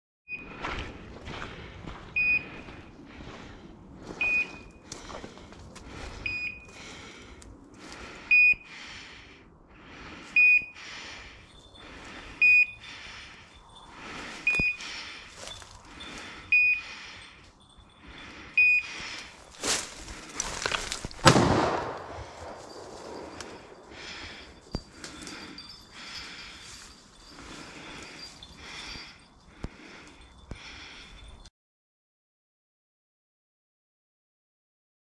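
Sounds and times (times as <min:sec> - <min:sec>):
beeper collar short high beeps: 0:04.2 - 0:04.7, 0:10.4 - 0:10.8
footsteps crunching through dry leaves: 0:19.3 - 0:21.6.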